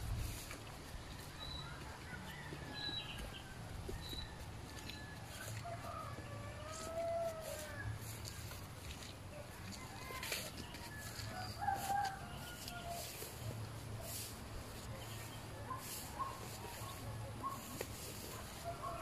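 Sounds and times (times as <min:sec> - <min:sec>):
small birds chirping: 0:00.2 - 0:06.0, 0:10.1 - 0:19.0
distant rooster crowing: 0:01.0 - 0:08.6, 0:09.3 - 0:19.0.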